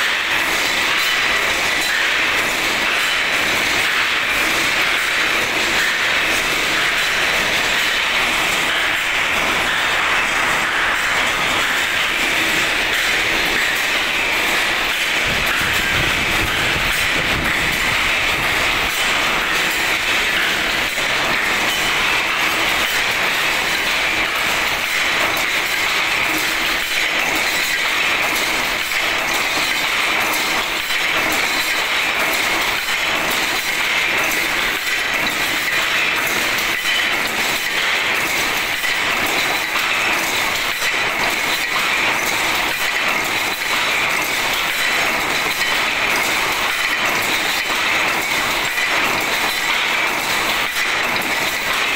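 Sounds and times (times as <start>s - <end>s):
wire mesh machine clattering: 0.0s - 51.9s.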